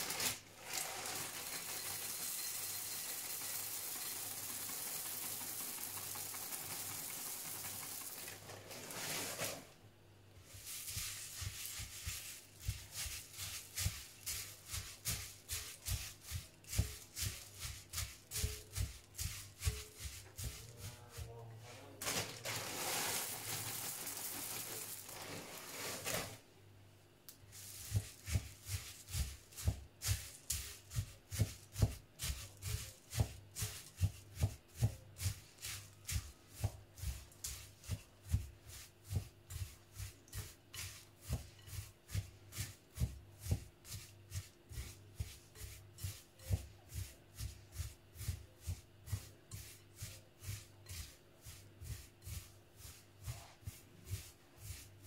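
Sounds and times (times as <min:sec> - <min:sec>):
puffed rice pouring into a bowl: 0:00.0 - 0:09.8, 0:22.0 - 0:26.4, 0:27.5 - 0:41.8
spatula scraping a glass bowl: 0:39.5 - 0:48.4, 0:49.1 - 0:54.9.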